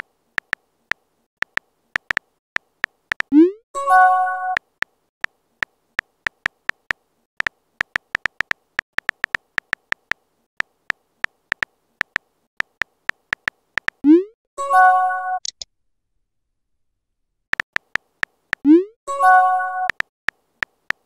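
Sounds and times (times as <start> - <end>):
keyboard key clicks: 1.4 - 3.3, 6.3 - 14.0, 17.6 - 18.6, 19.9 - 21.0.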